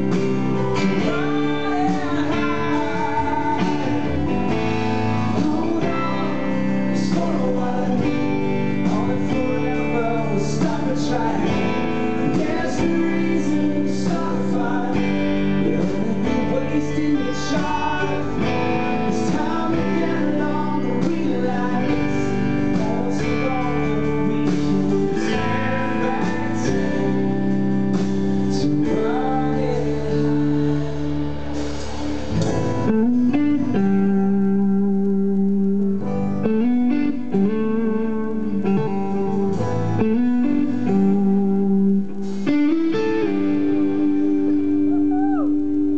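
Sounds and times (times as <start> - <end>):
man singing: 0.0 - 31.7
live band playing: 0.0 - 45.9.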